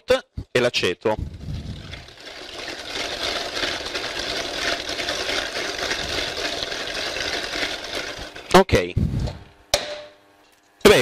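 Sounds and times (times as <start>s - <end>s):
electric stand mixer whirring: 1.2s - 8.5s.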